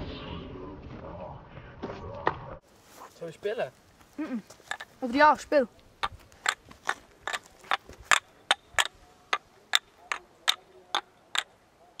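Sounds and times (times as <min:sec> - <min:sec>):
wooden ball clacking into cups: 0:04.6 - 0:05.0, 0:06.0 - 0:12.0.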